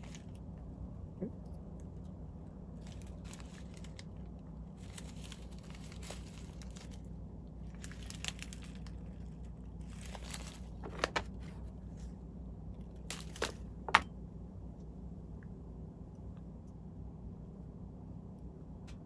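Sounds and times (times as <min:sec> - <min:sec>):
synthetic strands crinkling: 0:00.0 - 0:00.5, 0:01.8 - 0:12.2, 0:12.8 - 0:14.0
steady low hum: 0:00.0 - 0:19.0.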